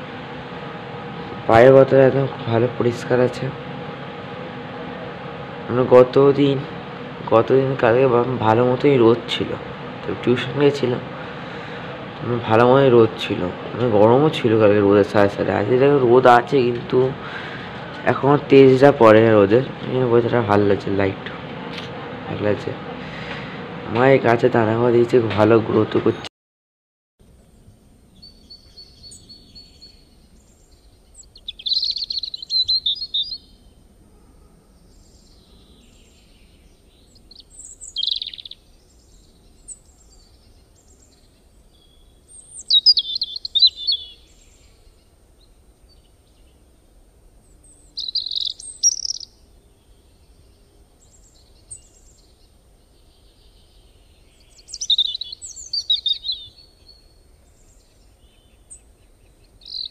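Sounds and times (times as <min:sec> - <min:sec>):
bird singing: 0:27.4 - 0:59.9.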